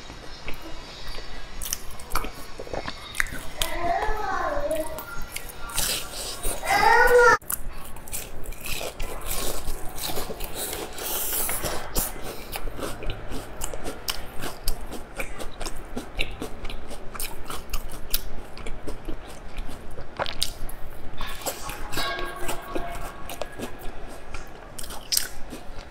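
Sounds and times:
chewing crunchy pastry: 0.4s - 3.8s, 4.6s - 25.9s.

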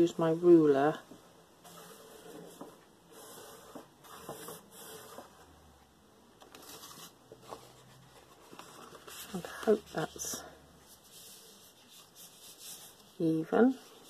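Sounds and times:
card stock rustling: 6.4s - 13.1s.

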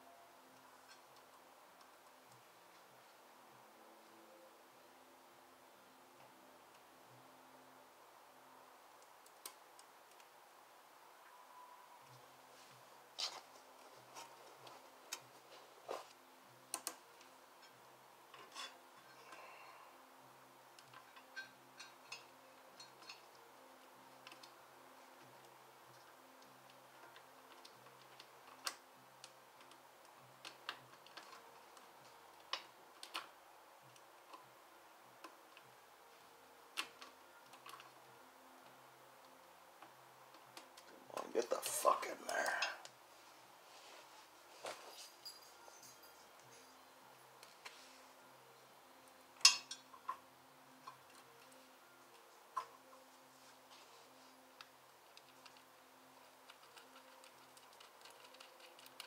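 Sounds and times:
faint steady hum: 0.0s - 59.0s
clinks of hand tools and metal: 44.8s - 46.8s, 49.4s - 50.2s.

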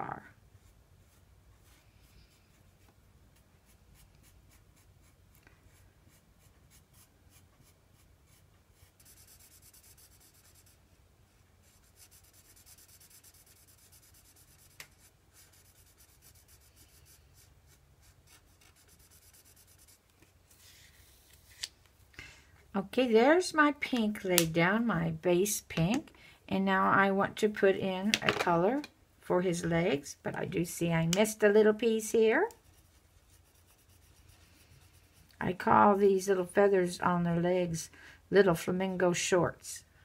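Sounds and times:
felt-tip marker scratching on paper: 3.6s - 10.8s, 11.6s - 20.0s, 32.5s - 35.2s.

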